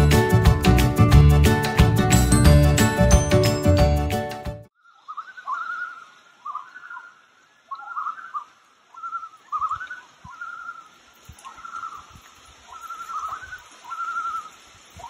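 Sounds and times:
loon quavering calls: 5.0s - 10.9s, 12.7s - 14.5s.

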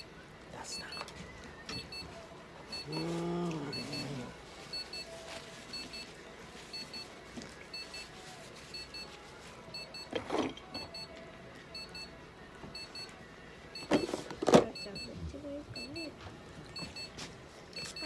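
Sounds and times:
electronic two-tone beeping: 3.7s - 5.0s.

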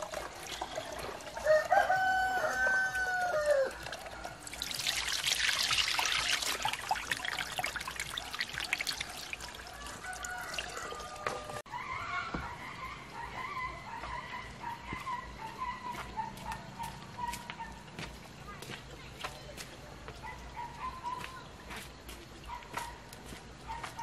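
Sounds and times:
water splashing onto concrete: 0.0s - 1.7s, 3.6s - 11.6s
water trickling from hose: 0.0s - 11.7s
rooster crowing: 1.4s - 3.9s, 9.6s - 13.8s.

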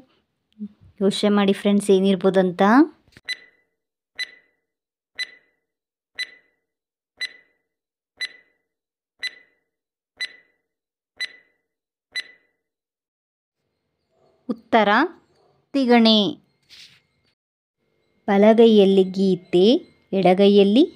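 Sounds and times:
countdown timer ticks with ring: 4.2s - 4.5s, 5.2s - 5.5s, 6.2s - 6.5s, 7.2s - 7.6s, 8.2s - 8.6s, 9.2s - 9.6s, 10.2s - 10.5s, 11.2s - 11.5s, 12.2s - 12.5s.

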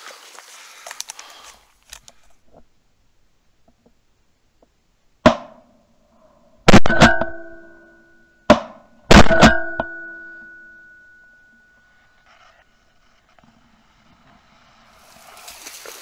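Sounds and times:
shotgun shots: 6.7s - 7.4s, 8.5s - 9.8s
metallic ringing: 6.7s - 12.1s
sharp bang: 8.5s - 10.2s.

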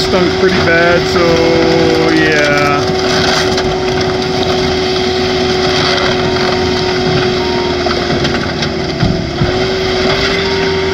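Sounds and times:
car crusher whining: 0.0s - 10.9s
metal knocks: 6.1s - 10.3s.

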